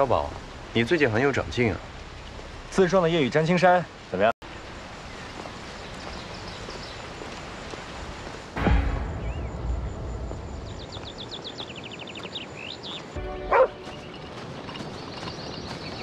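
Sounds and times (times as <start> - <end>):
dog barking: 13.5 - 13.8.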